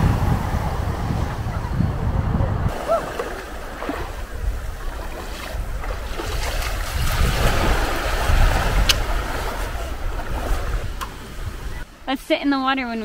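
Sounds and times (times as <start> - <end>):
wind rumbling on microphone: 0.0 - 11.9
small waves washing onto sand: 2.7 - 11.9.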